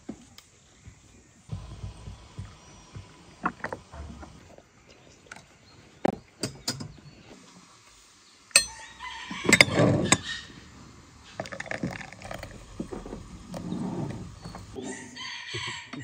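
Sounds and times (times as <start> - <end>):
glass and crockery clinking: 8.6 - 8.8.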